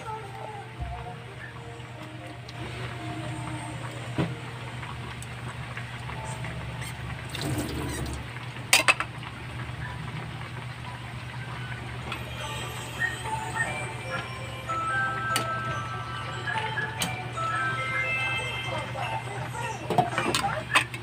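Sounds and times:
soup bubbling at a boil: 0:02.4 - 0:12.0.

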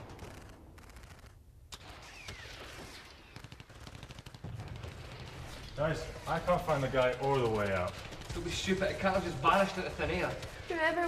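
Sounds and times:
sharp clicks: 0:00.0 - 0:02.5
faint gunfire sound effects: 0:00.0 - 0:11.0.

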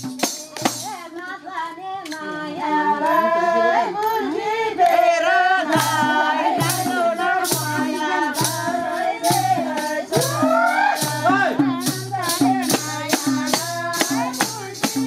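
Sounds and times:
hand drum beat: 0:00.0 - 0:01.2, 0:05.0 - 0:15.0
group singing a folk song: 0:00.3 - 0:15.0
hands clapping: 0:02.0 - 0:02.2.

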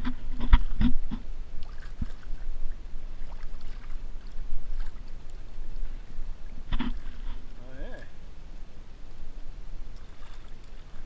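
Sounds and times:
reeds scraping along kayak hull: 0:00.0 - 0:08.0.

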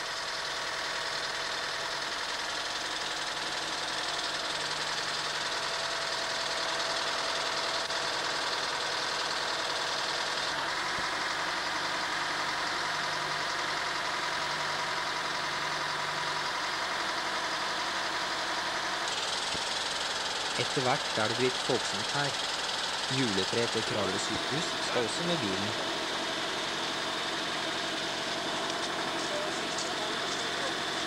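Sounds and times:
crane lorry engine running: 0:00.0 - 0:31.0.

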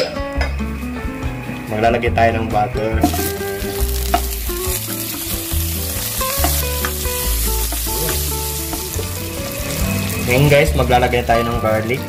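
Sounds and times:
spatula in a wok: 0:03.0 - 0:10.8
butter sizzling in a wok: 0:03.0 - 0:12.0.

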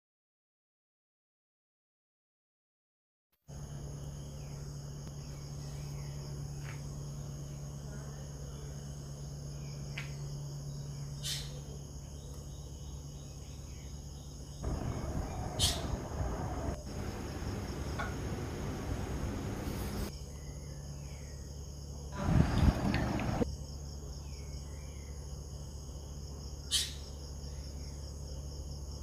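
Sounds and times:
low steady hum: 0:03.5 - 0:21.3, 0:22.2 - 0:23.5
insect chirring: 0:08.9 - 0:21.7.

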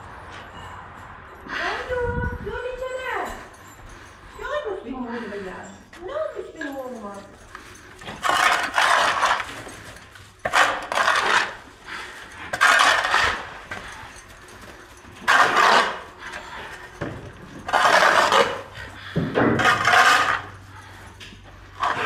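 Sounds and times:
shovel scraping barn floor: 0:07.9 - 0:22.0.

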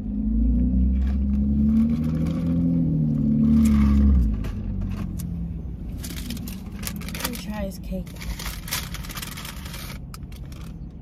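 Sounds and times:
car engine accelerating: 0:00.0 - 0:07.4.

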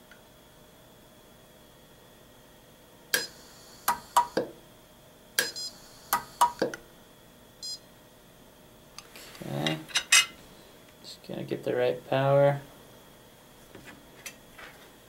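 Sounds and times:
micro-welder arc snaps: 0:03.1 - 0:04.6, 0:05.4 - 0:06.8.

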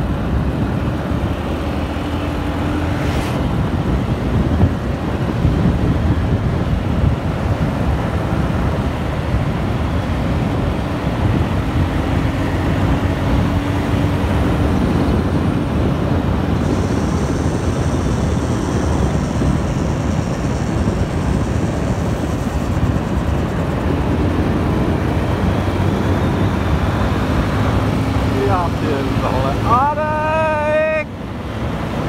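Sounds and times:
vehicle engine drone: 0:00.0 - 0:32.0
wind and road noise: 0:00.0 - 0:32.0.

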